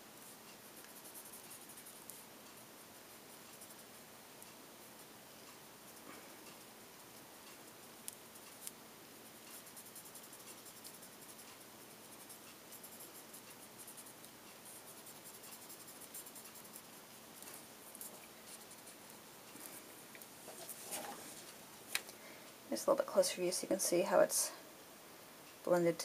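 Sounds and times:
small ticks: 0:00.2 - 0:20.3
blending stump rubbing on paper: 0:09.4 - 0:19.0.

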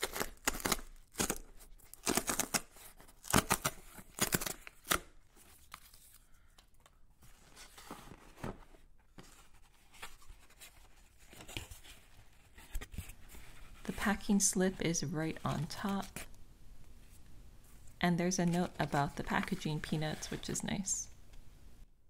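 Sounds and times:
cardboard tear strip ripping: 0:00.0 - 0:05.2
cardboard rustling: 0:07.2 - 0:14.3.

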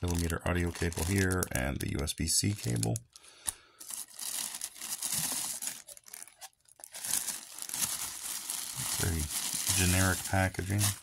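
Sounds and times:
tissue paper rustling: 0:03.8 - 0:11.0.

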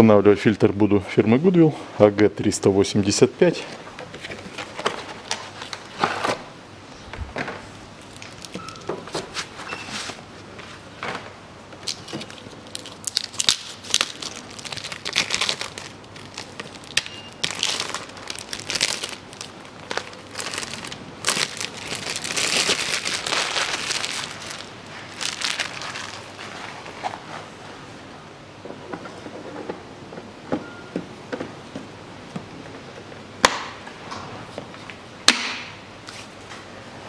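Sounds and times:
plastic wrapping crinkling: 0:08.0 - 0:10.2, 0:11.8 - 0:27.4.

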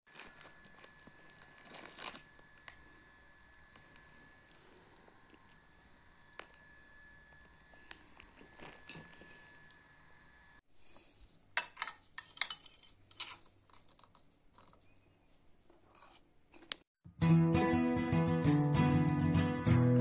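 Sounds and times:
faint room hum: 0:00.1 - 0:16.8
metal spoon clinking ceramic bowl: 0:11.6 - 0:13.4.

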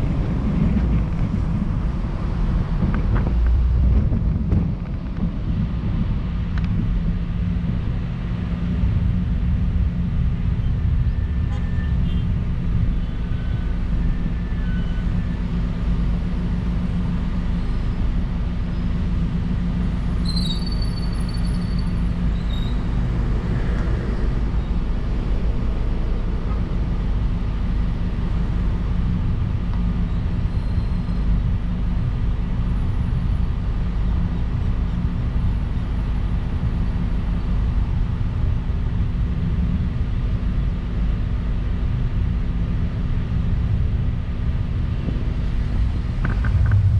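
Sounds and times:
car road and engine rumble: 0:00.0 - 0:46.9.

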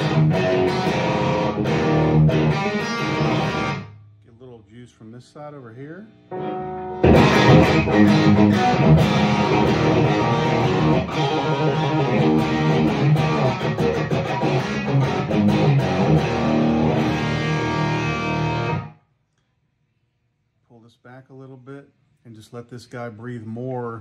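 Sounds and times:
overdriven electric guitar: 0:00.0 - 0:04.0, 0:06.3 - 0:19.0.

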